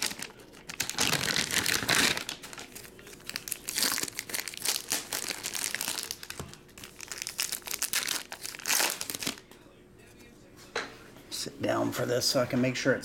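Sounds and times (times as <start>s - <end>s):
plastic wrapper crinkling: 0.0s - 9.5s.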